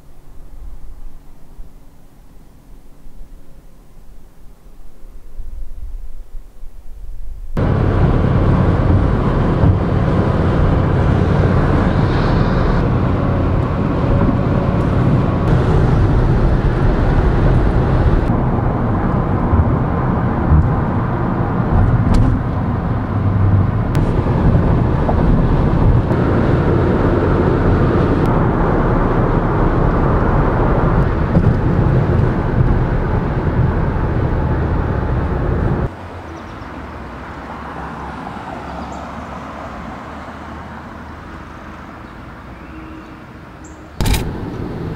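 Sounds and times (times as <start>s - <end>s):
car cabin road rumble: 7.5s - 36.0s, 44.0s - 44.9s.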